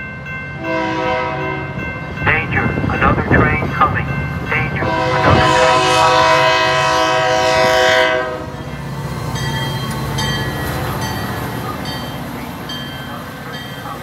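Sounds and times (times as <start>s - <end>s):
crossing bell dings: 0.0s - 5.1s, 8.5s - 14.0s
train rumbling past: 0.0s - 14.0s
locomotive air horn blast: 0.6s - 1.7s, 4.8s - 8.6s
clicking train wheels: 8.5s - 14.0s.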